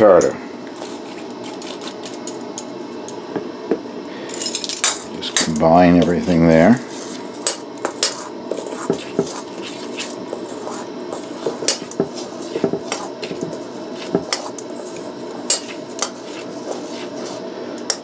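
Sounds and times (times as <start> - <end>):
spoon scraping metal bowl: 6.0 - 18.0.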